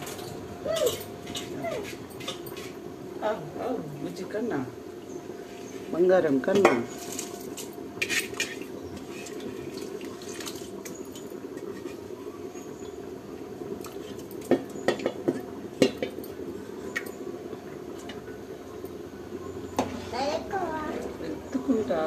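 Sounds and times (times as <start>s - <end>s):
rice scraped from steel bowl: 8.0s - 9.4s.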